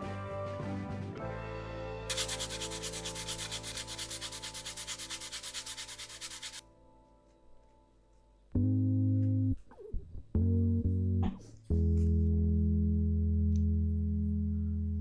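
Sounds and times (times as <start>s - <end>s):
scratchy rubbing on leather: 2.1s - 6.6s.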